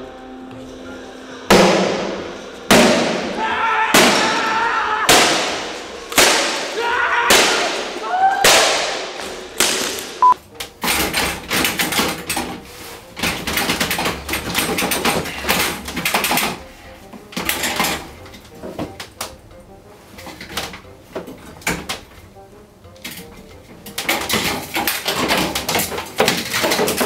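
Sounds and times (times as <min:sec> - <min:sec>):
clattering and rattling: 0:09.2 - 0:27.0.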